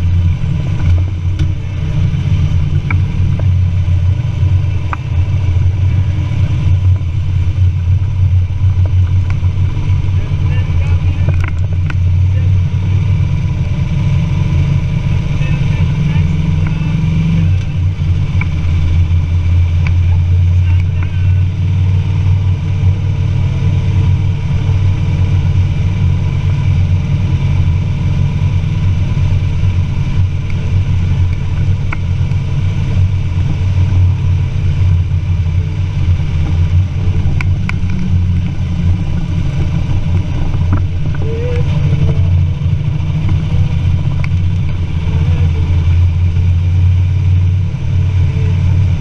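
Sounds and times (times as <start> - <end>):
motorcycle engine drone: 0.0 - 49.0
rushing wind noise: 0.0 - 49.0.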